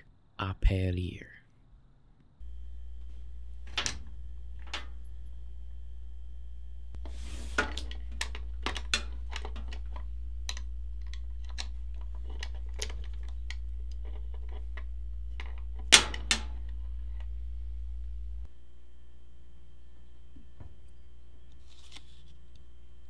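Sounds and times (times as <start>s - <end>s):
low steady hum: 2.4s - 23.0s
metal lock clicking and rattling: 3.7s - 5.0s, 7.7s - 16.7s.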